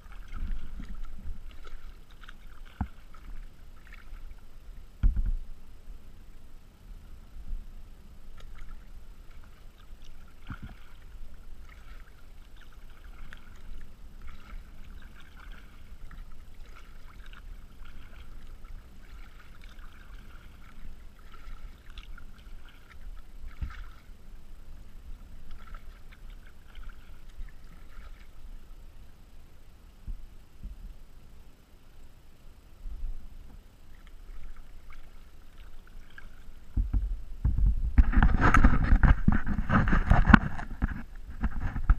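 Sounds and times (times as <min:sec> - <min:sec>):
paddle splashing water: 0:00.0 - 0:06.5, 0:07.5 - 0:30.8, 0:32.9 - 0:41.9
low rumble: 0:36.5 - 0:41.9.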